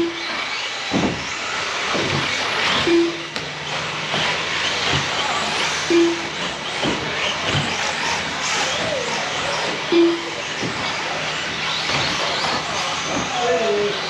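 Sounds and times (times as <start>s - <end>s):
rc truck motors whining: 0.0s - 14.0s
tyres running over track: 0.0s - 14.0s
short low beep: 2.9s - 3.3s, 5.9s - 6.3s, 9.9s - 10.4s.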